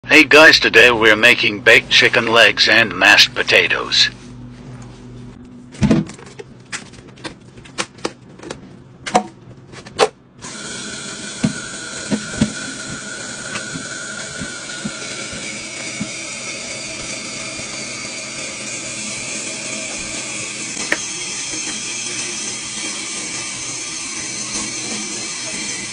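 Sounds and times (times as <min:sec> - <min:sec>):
faucet water running: 0:10.4 - 0:25.9.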